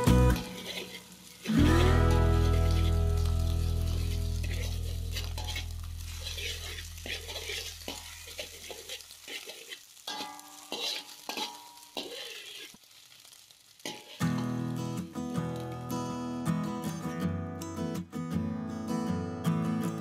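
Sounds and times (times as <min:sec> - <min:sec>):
metal spatula scraping pan: 0:00.0 - 0:12.8, 0:13.8 - 0:14.6
egg sizzling in a wok: 0:00.0 - 0:16.4.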